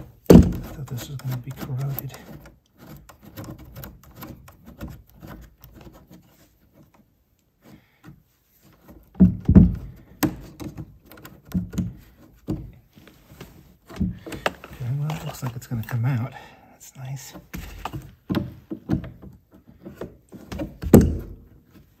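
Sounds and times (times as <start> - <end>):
dull knocks of metal parts: 0.0 - 5.9, 8.9 - 12.8, 17.6 - 21.7
metal nut clicking and scraping: 0.7 - 7.5.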